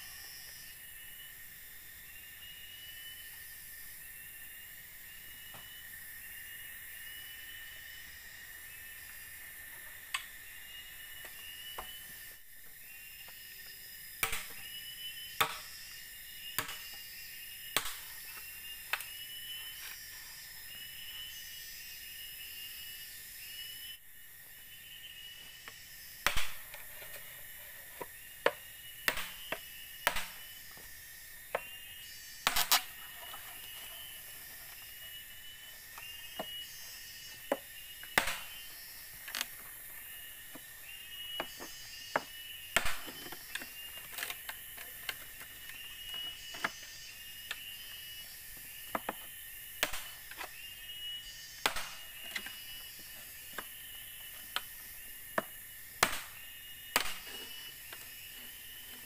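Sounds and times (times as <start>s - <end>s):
machete splitting bamboo: 14.2s - 14.8s, 15.4s - 15.8s, 16.5s - 17.0s, 17.8s - 18.1s, 26.2s - 26.8s, 28.4s - 30.5s, 32.4s - 33.1s, 38.0s - 38.6s, 42.8s - 45.2s, 49.8s - 50.5s, 51.6s - 52.6s, 56.0s - 57.6s.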